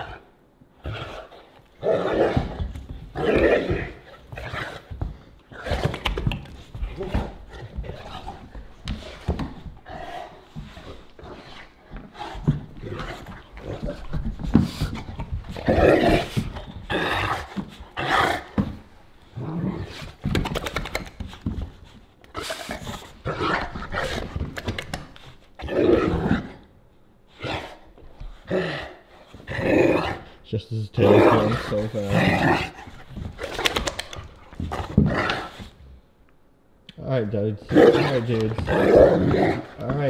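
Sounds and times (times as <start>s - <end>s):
dogs growling and snarling: 0.0s - 21.2s, 22.3s - 26.7s, 27.3s - 30.4s, 31.0s - 36.0s, 37.6s - 40.0s
paws knocking on wooden floor: 2.3s - 16.9s.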